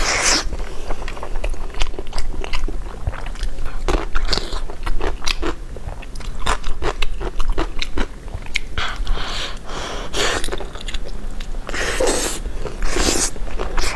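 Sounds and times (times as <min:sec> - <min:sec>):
wet lip smacks and chewing: 0:05.2 - 0:09.1.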